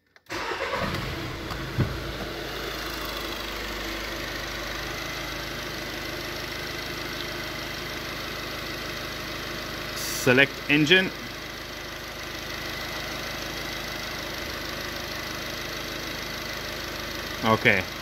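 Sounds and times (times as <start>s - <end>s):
diesel engine starting and idling: 0.3s - 18.0s
low thump: 1.4s - 2.4s.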